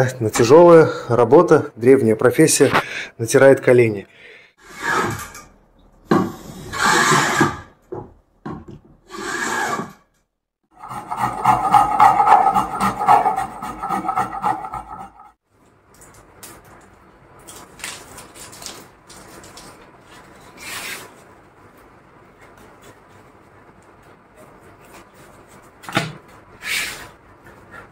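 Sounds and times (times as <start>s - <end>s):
hand plane stroke on wood: 10.8s - 15.3s
rubbing and handling: 10.8s - 15.3s
rasp on hardwood: 10.8s - 15.4s
short scrape: 26.6s - 27.1s.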